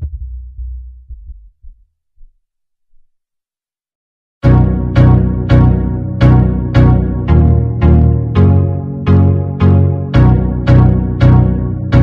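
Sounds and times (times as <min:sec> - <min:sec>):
keyboard playing notes: 0:04.4 - 0:12.0.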